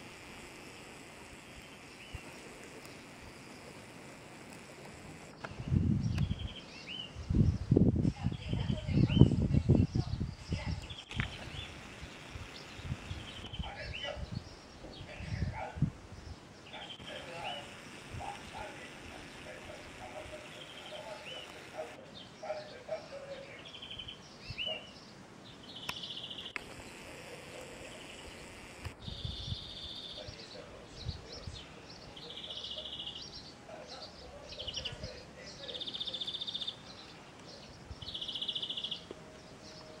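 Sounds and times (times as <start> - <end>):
bird trilling: 10.6 - 14.2, 16.6 - 25.0, 25.6 - 30.4, 35.7 - 37.1, 38.0 - 39.1
short bird chirps: 27.9 - 30.3, 38.0 - 39.1.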